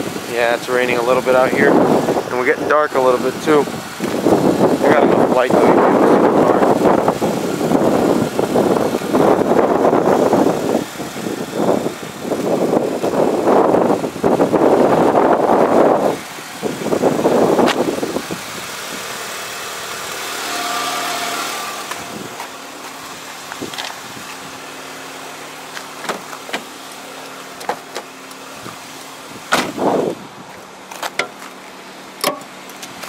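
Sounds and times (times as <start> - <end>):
wind buffeting microphone: 0.0 - 19.2, 20.9 - 24.9, 28.5 - 30.6
car engine idling: 0.0 - 33.0.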